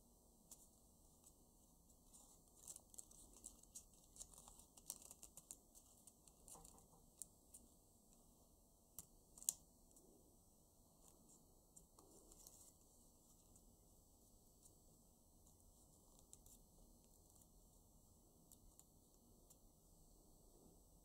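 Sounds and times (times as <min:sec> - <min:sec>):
banknote paper crinkling: 0:00.5 - 0:07.7, 0:11.0 - 0:13.7, 0:15.4 - 0:17.7.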